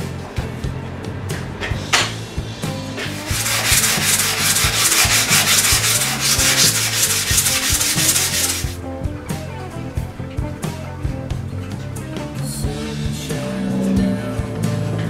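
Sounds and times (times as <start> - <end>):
hand sanding rasping hiss: 3.0 - 8.8.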